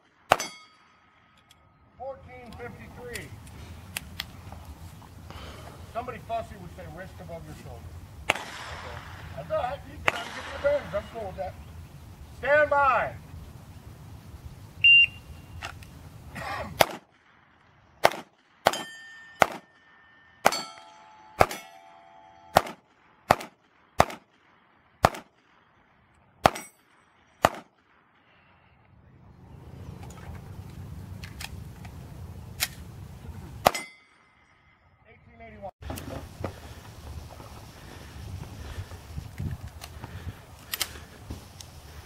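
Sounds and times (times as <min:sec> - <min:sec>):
pistol shots: 0:00.0 - 0:00.8, 0:08.2 - 0:09.4, 0:10.0 - 0:11.2, 0:16.8 - 0:28.1, 0:33.6 - 0:34.0
steel plate clanging: 0:18.7 - 0:22.6, 0:33.7 - 0:34.6.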